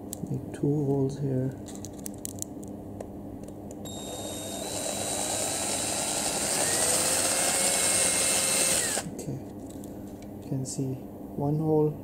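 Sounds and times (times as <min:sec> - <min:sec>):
electric drill boring plastic: 0:03.9 - 0:09.1.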